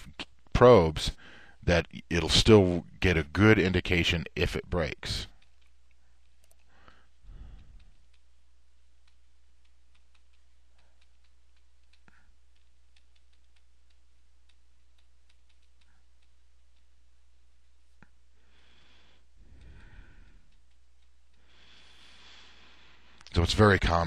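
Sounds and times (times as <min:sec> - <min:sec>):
faint clicks and ticks: 0:00.0 - 0:24.0
low electrical hum: 0:00.0 - 0:24.0
soft low sound: 0:05.3 - 0:18.4, 0:19.2 - 0:21.5.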